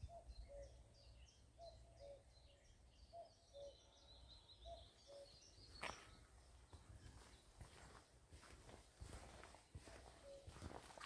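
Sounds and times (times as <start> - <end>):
cuckoo calling: 0.0 - 0.8, 1.6 - 4.0, 4.6 - 6.0, 9.8 - 10.8
small birds twittering: 0.0 - 11.0.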